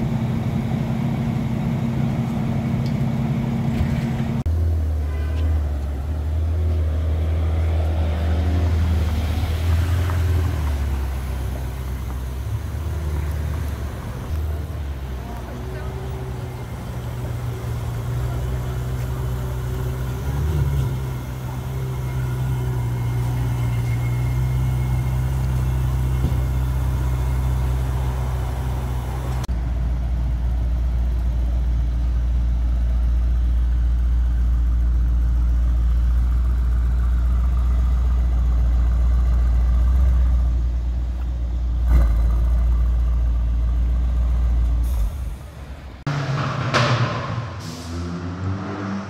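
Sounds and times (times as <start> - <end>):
car engine idling: 0.0 - 5.0, 9.2 - 47.8.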